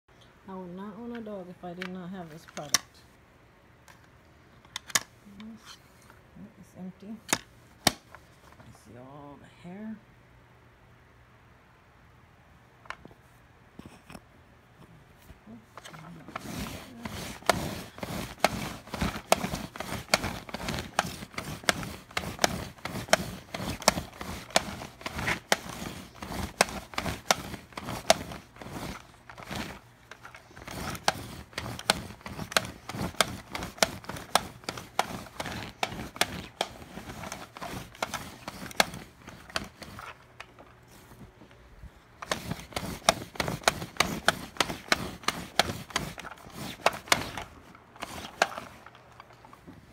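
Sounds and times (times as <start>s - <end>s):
lint roller clicking over fabric: 0.5s - 3.0s, 7.0s - 8.6s, 15.2s - 41.3s, 42.2s - 49.9s.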